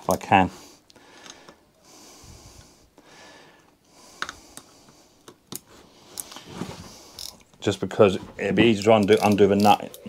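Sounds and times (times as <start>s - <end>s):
spanners clicking on metal bolt: 9.0s - 10.0s.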